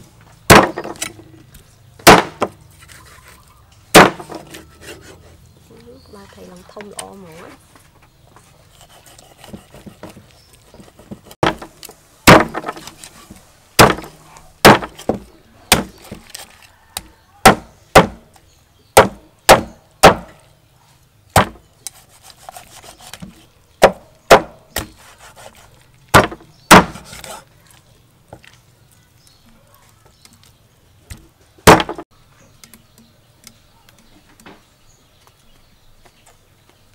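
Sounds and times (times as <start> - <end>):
cleaver chopping fish on wood: 0.5 - 1.1, 2.0 - 2.6, 3.9 - 4.5, 11.4 - 12.9, 13.8 - 16.3, 17.0 - 18.3, 19.0 - 20.4, 21.4 - 21.6, 23.8 - 25.5, 26.1 - 27.4, 31.6 - 32.0.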